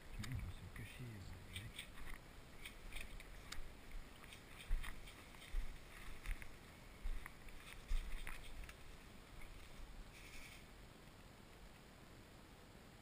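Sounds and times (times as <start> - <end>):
rustling of branches and gear: 0.0 - 11.9
footsteps through undergrowth: 1.4 - 10.7.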